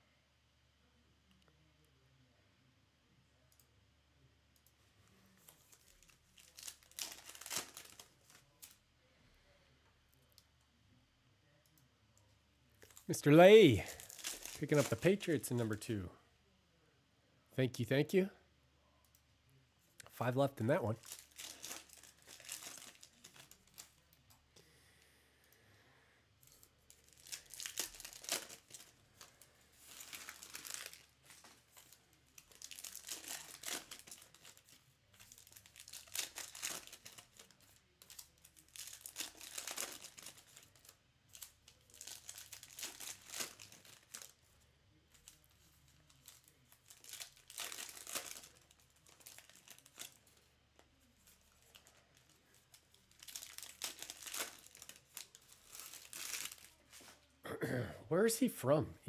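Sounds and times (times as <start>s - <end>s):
wrappers crinkling: 5.3s - 8.8s, 12.8s - 15.9s, 20.4s - 24.2s, 26.4s - 57.2s
foil card packs tearing: 5.7s - 8.7s, 12.9s - 15.5s, 20.9s - 23.9s, 26.9s - 44.3s, 45.2s - 50.4s, 51.3s - 57.1s.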